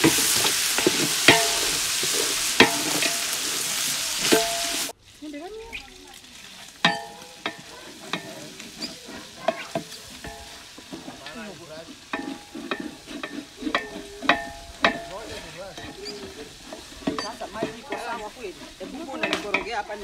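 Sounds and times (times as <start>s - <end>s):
wooden paddle clanking metal pot: 0.0s - 5.0s, 6.6s - 20.0s
faint sizzle of food frying: 0.0s - 20.0s.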